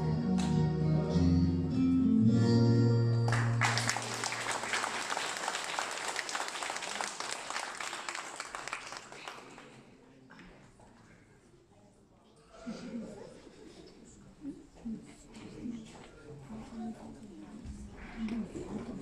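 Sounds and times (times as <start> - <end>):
song backing music: 0.0 - 4.6
audience applause: 3.3 - 9.8.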